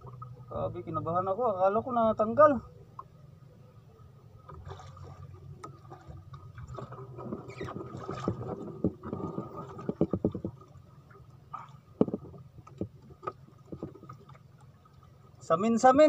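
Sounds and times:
water sloshing against hull: 0.0s - 16.0s
fish splashing: 4.5s - 12.3s.

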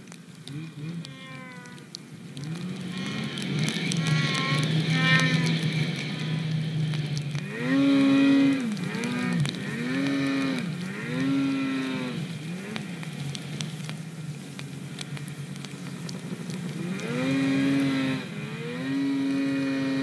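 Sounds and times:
snowmobile engine revving: 0.5s - 13.9s, 16.0s - 20.0s.

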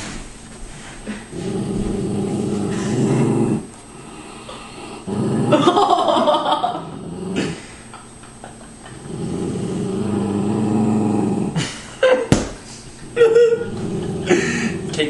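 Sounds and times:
dog growling: 1.2s - 7.8s, 8.9s - 11.8s, 13.1s - 15.0s.

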